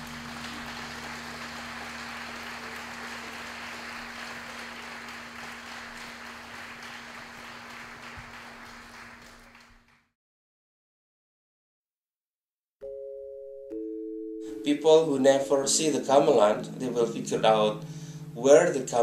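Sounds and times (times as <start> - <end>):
audience applause: 0.0 - 10.1
low steady tone: 12.8 - 19.0.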